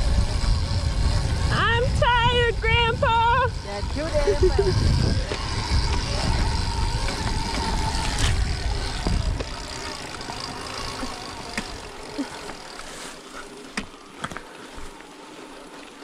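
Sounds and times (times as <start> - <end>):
wind buffeting microphone: 0.0 - 10.5
electric motorbike whine: 0.0 - 16.0.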